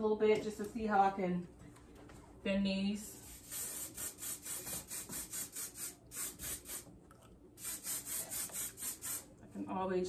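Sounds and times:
spray bottle spritzing: 0:03.4 - 0:06.9, 0:07.6 - 0:09.3.

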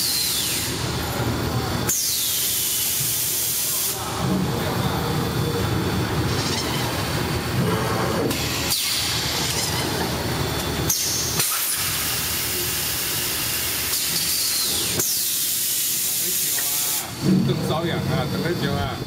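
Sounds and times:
machine hissing: 0:00.0 - 0:19.0
machine noise: 0:00.0 - 0:19.0
falling whine: 0:17.0 - 0:19.0.

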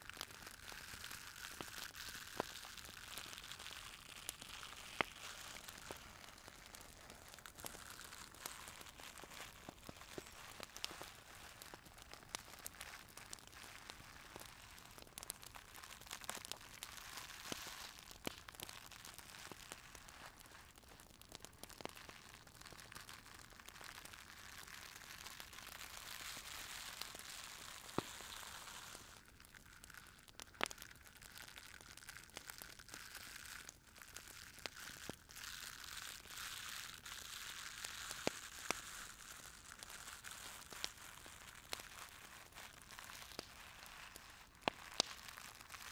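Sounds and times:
crinkling and rustling: 0:02.4 - 0:16.6.

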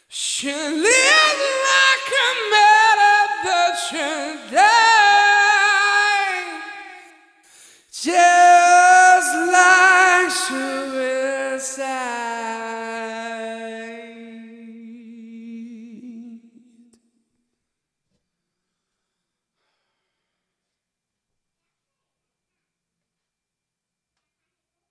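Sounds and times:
man singing a cappella: 0:00.0 - 0:07.2, 0:07.9 - 0:17.0.

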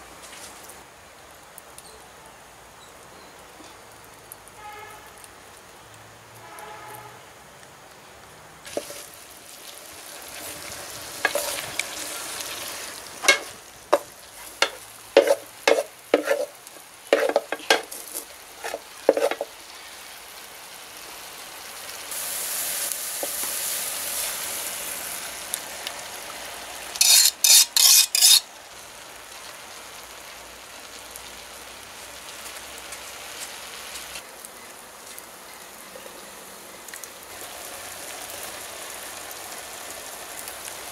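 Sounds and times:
vegetables sizzling in a pan: 0:08.6 - 0:40.9
metal spoon scraping a pan: 0:08.7 - 0:09.0, 0:11.2 - 0:11.9, 0:13.2 - 0:19.5, 0:27.0 - 0:28.4.

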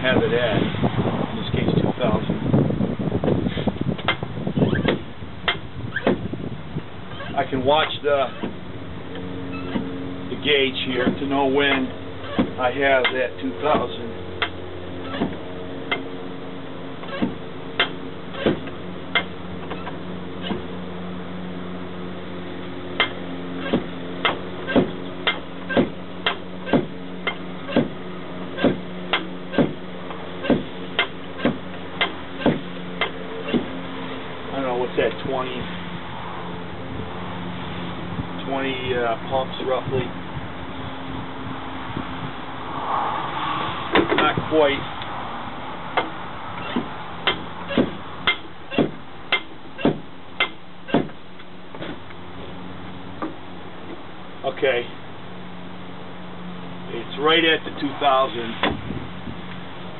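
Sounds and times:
hand pump strokes: 0:07.1 - 0:08.6, 0:09.5 - 0:09.9.

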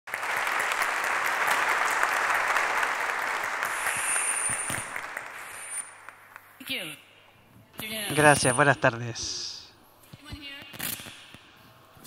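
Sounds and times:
audience applauding: 0:00.1 - 0:06.4.

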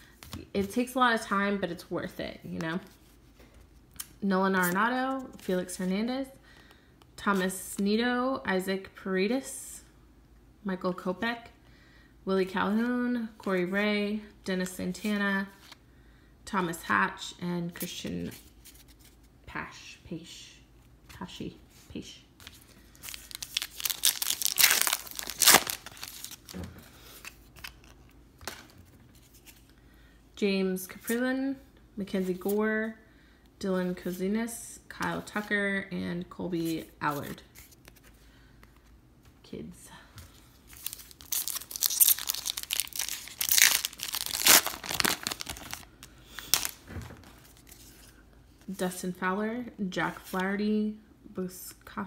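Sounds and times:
cards rustling: 0:22.4 - 0:29.7, 0:36.8 - 0:38.9, 0:40.7 - 0:48.2
wrapper torn and crinkled: 0:22.9 - 0:26.5, 0:40.7 - 0:47.8.

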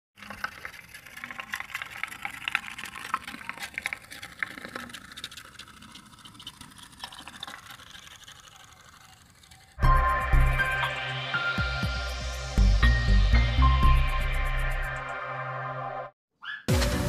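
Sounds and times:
pop-pop boat engine clicking: 0:00.2 - 0:09.8.

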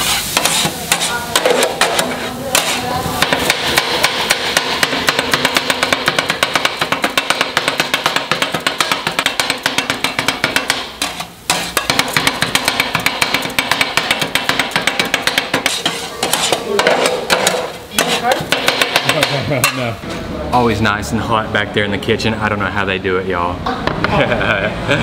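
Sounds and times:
metal blades chopping on griddle: 0:00.0 - 0:19.9.

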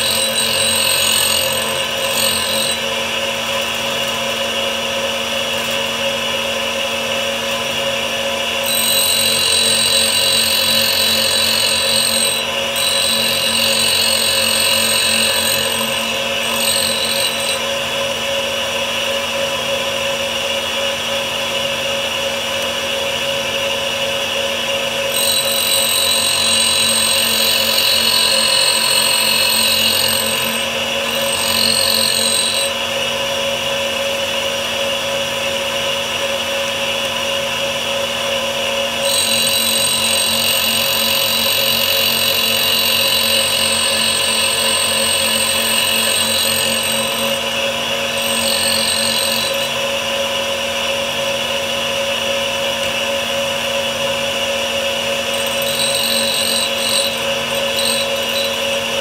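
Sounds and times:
grinder motor hum: 0:00.0 - 0:06.5, 0:07.2 - 0:18.0, 0:25.1 - 0:32.9, 0:39.0 - 0:50.0, 0:55.3 - 0:59.0
high grinding hiss: 0:55.4 - 0:58.9.

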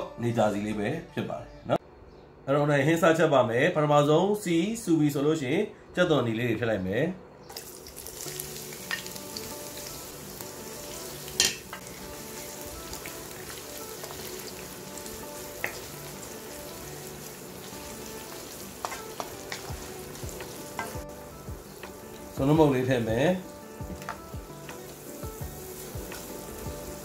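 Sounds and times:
onions sizzling in hot oil: 0:07.5 - 0:27.0.

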